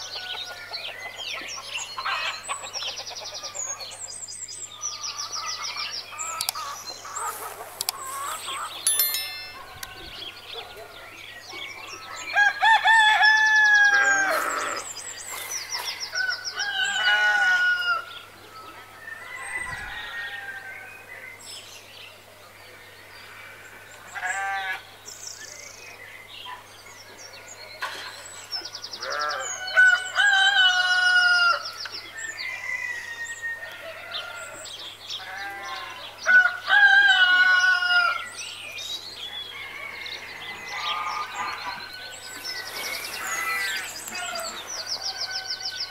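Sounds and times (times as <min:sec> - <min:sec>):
roosters crowing: 0:12.2 - 0:15.0, 0:16.0 - 0:18.2, 0:19.0 - 0:21.0, 0:29.0 - 0:38.3, 0:39.5 - 0:45.9
bird calls and chirps: 0:37.4 - 0:45.9.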